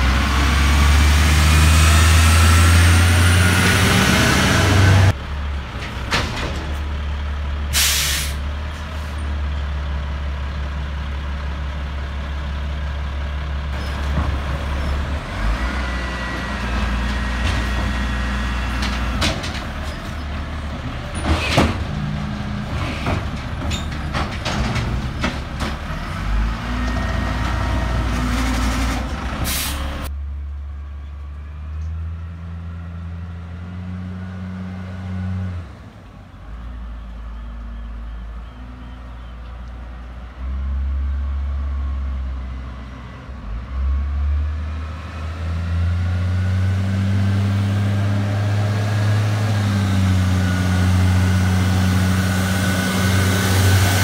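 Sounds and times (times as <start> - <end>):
air brakes hissing: 7.7 - 9.2, 29.4 - 30.0.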